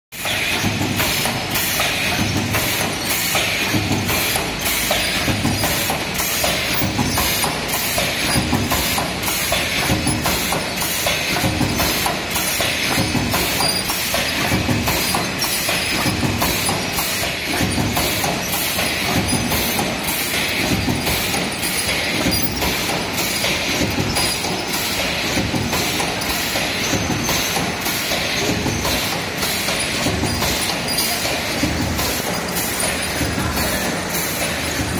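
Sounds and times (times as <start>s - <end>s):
conveyor belt rattling: 0.2s - 34.9s
machine rhythmic low thud: 0.2s - 34.9s.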